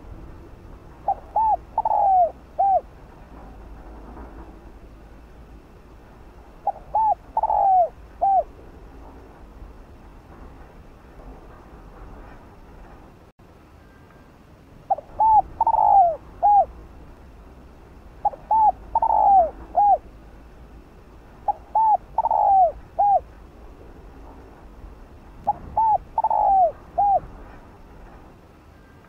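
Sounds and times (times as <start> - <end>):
dove cooing: 1.0 - 3.0, 6.6 - 8.6, 14.9 - 16.8, 18.2 - 20.2, 21.4 - 23.4, 25.5 - 27.4.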